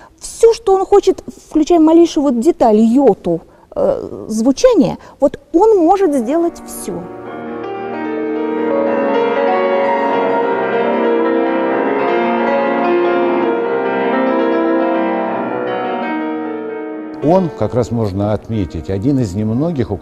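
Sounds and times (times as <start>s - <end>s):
piano with symphony orchestra: 6.0s - 20.0s.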